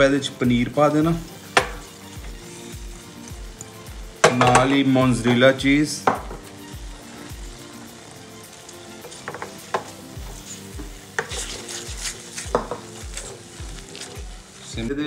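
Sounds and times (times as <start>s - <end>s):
spatula scraping a steel pan: 9.0s - 14.1s.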